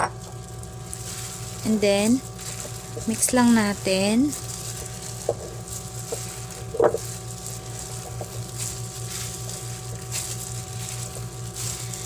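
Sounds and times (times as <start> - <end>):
steady low hum: 0.0 - 12.0
plastic glove rustling and crinkling: 0.2 - 12.0.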